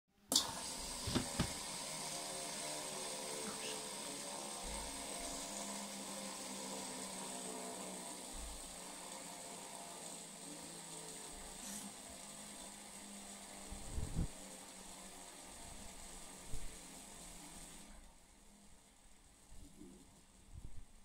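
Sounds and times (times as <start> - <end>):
fidget spinner whirring: 0.6 - 21.0
knocks on laminate floor: 1.1 - 1.6.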